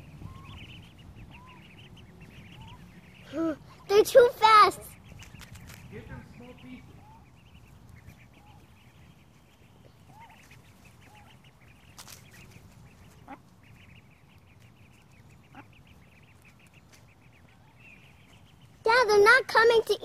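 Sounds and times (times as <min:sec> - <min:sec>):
ducklings peeping: 0:00.0 - 0:20.0
low duck calls: 0:12.4 - 0:14.0.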